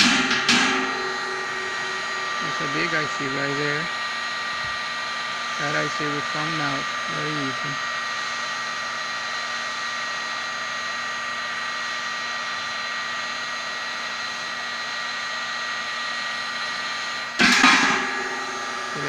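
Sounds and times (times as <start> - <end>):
heat gun blowing air: 0.0 - 19.0
loud clatter: 17.4 - 19.0.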